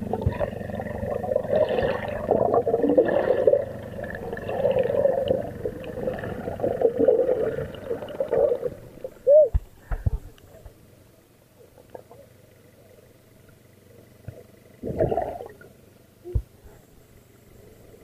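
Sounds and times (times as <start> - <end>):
underwater gurgling and bubbling: 0.0 - 9.5, 14.8 - 15.8.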